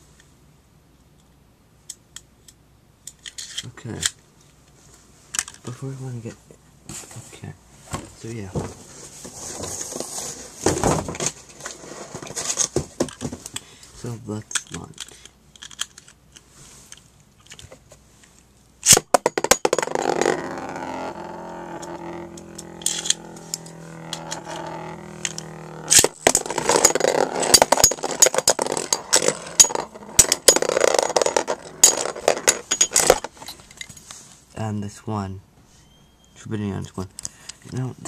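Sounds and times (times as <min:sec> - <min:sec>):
spinning tops clacking: 0:18.9 - 0:33.3
spinning top whirring: 0:19.8 - 0:32.5.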